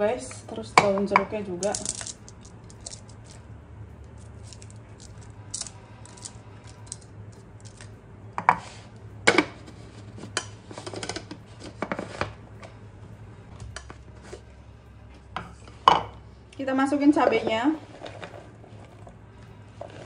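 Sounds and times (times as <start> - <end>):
low steady hum: 0.0 - 20.0
utensils knocking and clinking: 0.8 - 3.4.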